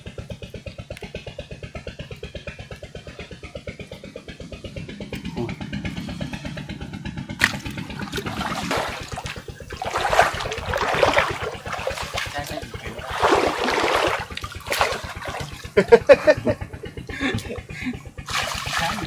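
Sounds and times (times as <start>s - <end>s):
small engine running: 0.0s - 19.0s
water splashing and rushing: 7.3s - 16.1s, 18.2s - 19.0s.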